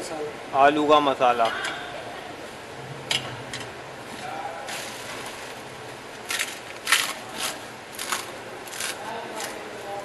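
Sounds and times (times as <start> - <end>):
faint background chatter: 0.0 - 5.4
dry crunches of crisps: 6.2 - 9.6.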